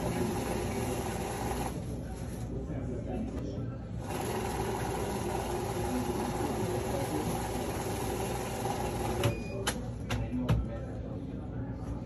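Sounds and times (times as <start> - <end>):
banknote counting machine running: 0.0 - 1.9, 4.0 - 9.4.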